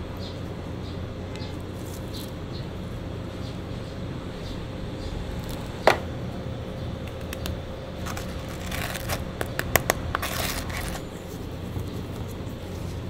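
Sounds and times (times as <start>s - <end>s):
low steady hum: 0.0s - 13.0s
bread scraping in metal tray: 8.0s - 9.3s, 10.2s - 11.2s.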